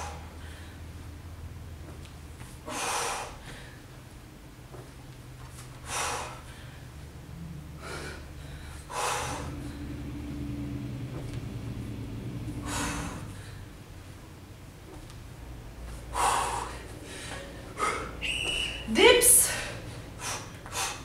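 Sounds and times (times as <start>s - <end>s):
woman breathing hard: 0.0s - 1.1s, 2.6s - 4.0s, 5.8s - 11.2s, 12.0s - 14.0s, 15.9s - 18.3s, 19.0s - 21.0s
low steady hum: 0.0s - 21.0s.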